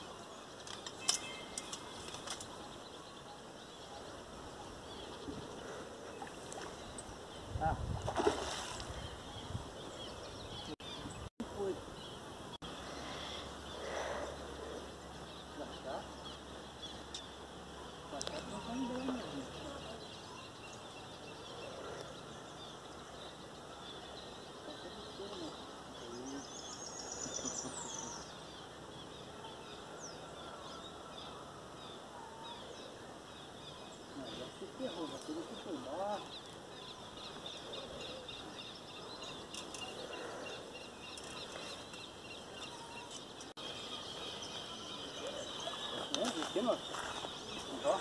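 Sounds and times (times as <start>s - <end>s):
faint bird chirps: 0.0s - 48.0s
fish splashing in water: 8.0s - 8.9s.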